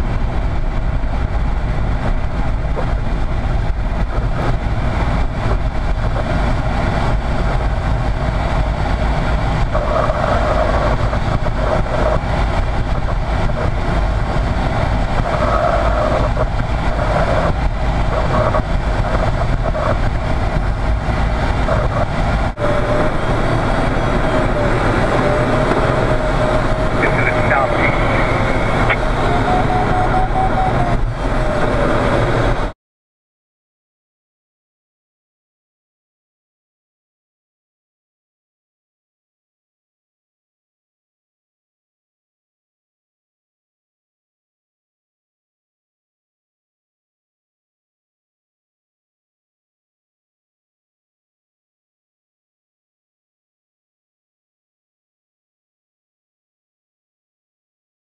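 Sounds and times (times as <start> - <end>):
air rushing in glider cockpit: 0.0 - 32.7
faint pitched tones: 22.6 - 31.5.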